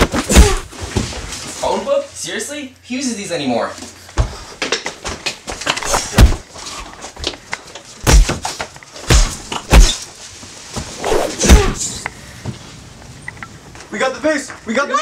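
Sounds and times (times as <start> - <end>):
punch thuds: 0.0 - 0.7, 5.9 - 6.4, 8.0 - 8.4, 9.1 - 10.1, 11.2 - 11.8.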